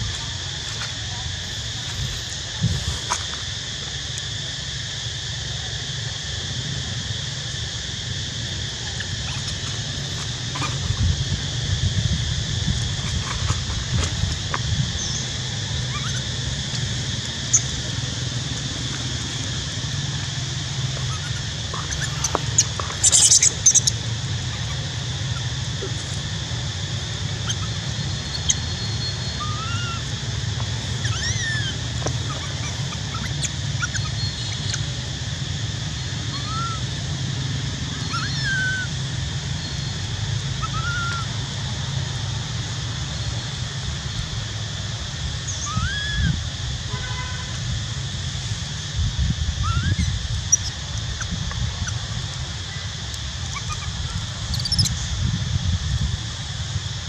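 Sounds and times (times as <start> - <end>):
steady high hum: 0.0 - 57.0
short high chirping calls: 14.9 - 16.8, 20.8 - 26.2, 31.0 - 34.9, 49.6 - 52.0, 53.4 - 55.1.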